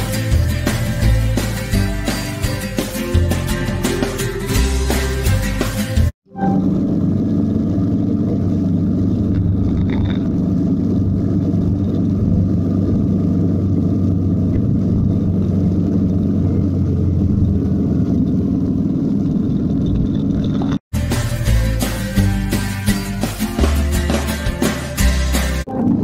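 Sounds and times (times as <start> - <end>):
motorcycle engine rumble: 6.3 - 26.0.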